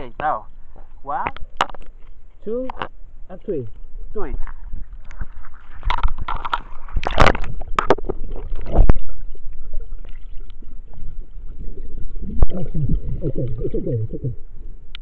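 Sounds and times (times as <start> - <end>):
muffled underwater rumble: 2.7 - 15.0
water splashing: 4.5 - 14.7.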